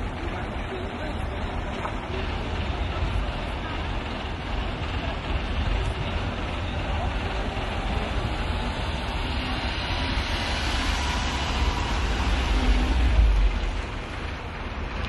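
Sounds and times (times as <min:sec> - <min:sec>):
van driving past: 0:06.8 - 0:15.0.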